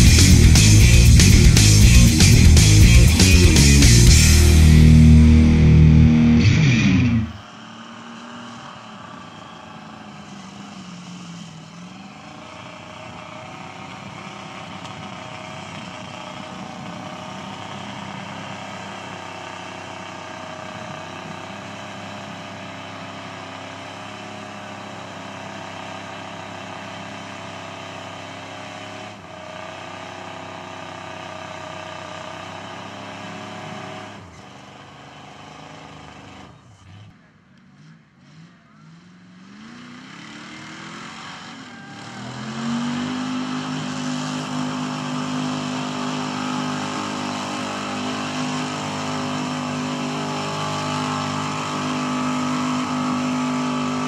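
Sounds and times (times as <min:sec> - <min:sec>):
pickup truck engine running: 0:00.0 - 0:27.5, 0:42.3 - 0:54.0.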